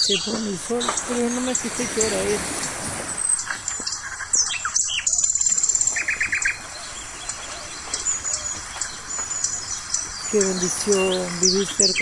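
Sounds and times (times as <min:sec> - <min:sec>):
small birds chirping: 0:00.0 - 0:12.0
small waves breaking on sand: 0:00.6 - 0:04.0.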